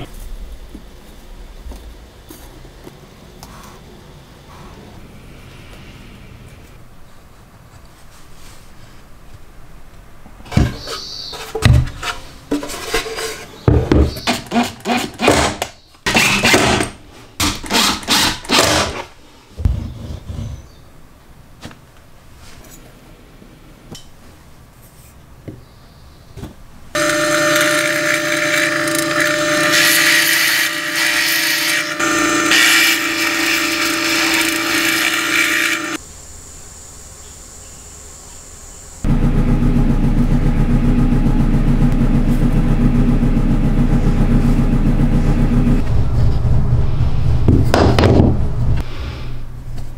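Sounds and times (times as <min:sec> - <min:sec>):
electric drill boring wood: 0:27.0 - 0:36.0.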